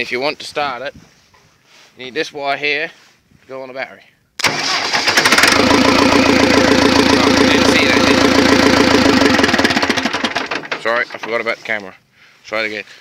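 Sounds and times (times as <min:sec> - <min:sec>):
starter motor cranking: 0:04.4 - 0:11.3
tractor engine clattering: 0:04.4 - 0:11.4.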